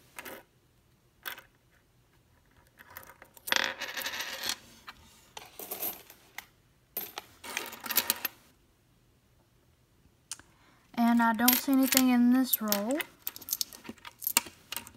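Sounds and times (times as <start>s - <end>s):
coins clinking on wooden table: 0.1s - 0.5s, 1.2s - 1.5s, 2.7s - 4.6s, 5.4s - 6.2s, 7.0s - 8.4s, 11.2s - 14.9s.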